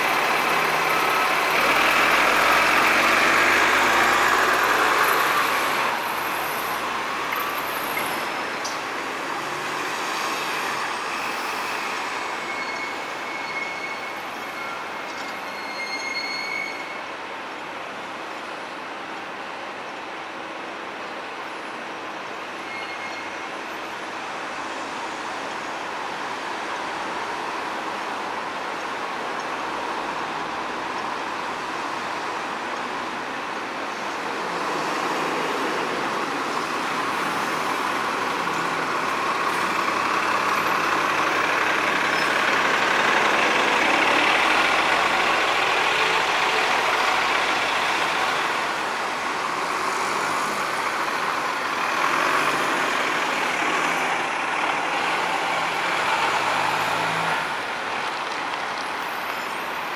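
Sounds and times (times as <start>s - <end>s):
road traffic noise: 0.0s - 59.9s.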